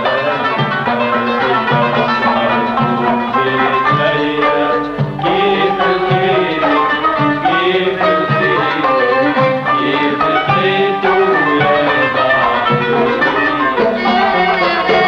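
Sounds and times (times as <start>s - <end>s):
middle eastern style music: 0.0s - 15.0s.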